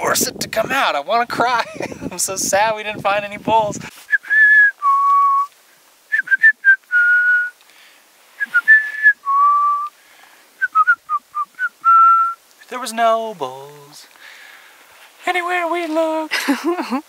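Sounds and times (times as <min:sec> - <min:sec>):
man whistling a tune: 0:04.1 - 0:05.5, 0:06.1 - 0:07.6, 0:08.4 - 0:09.9, 0:10.6 - 0:12.4.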